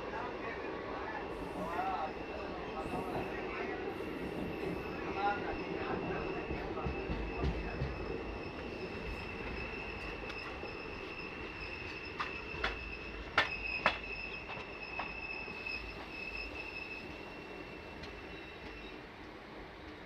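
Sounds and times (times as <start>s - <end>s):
train rolling on track: 0.0s - 20.0s
high-pitched wheel squeal: 7.3s - 19.0s.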